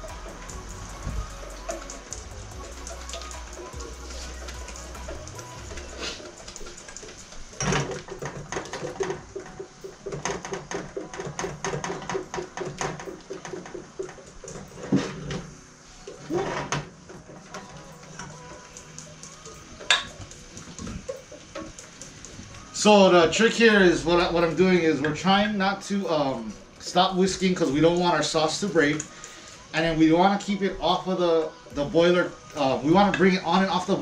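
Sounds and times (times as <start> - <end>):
metal bowl clanking against pot: 19.8 - 21.7.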